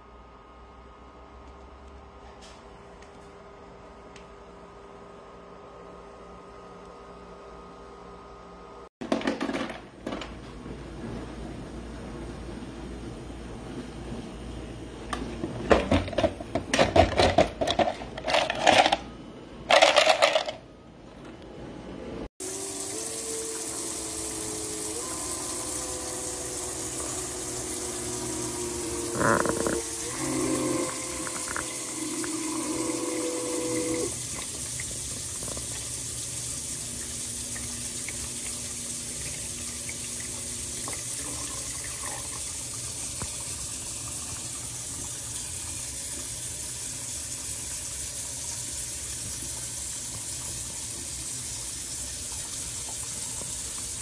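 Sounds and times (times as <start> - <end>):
ice maker low hum: 0.0 - 54.0
ice clattering in basket: 15.9 - 19.1
ice maker watery hiss: 22.4 - 54.0.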